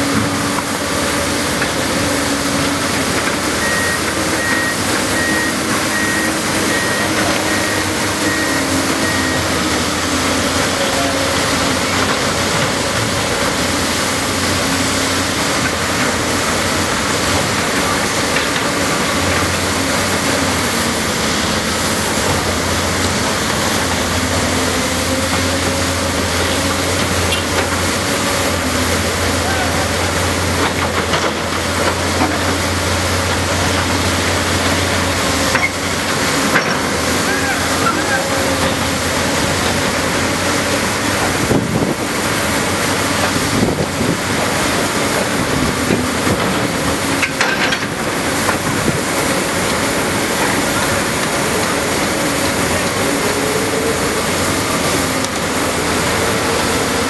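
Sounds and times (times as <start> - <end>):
construction machinery noise: 0.0 - 57.0
excavator diesel engine running: 0.0 - 57.0
backup alarm beeping: 3.6 - 9.8.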